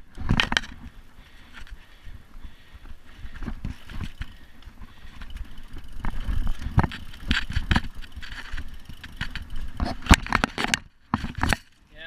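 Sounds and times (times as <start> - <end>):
bike rattling: 0.0 - 12.0
bike tyres rumbling on dirt: 0.0 - 12.0
bike knocking over rocks: 3.3 - 11.8.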